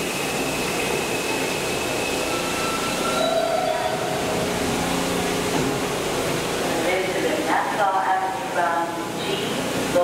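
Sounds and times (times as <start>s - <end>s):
train wheels on rails: 0.0s - 8.5s
high electric whine: 1.2s - 7.4s.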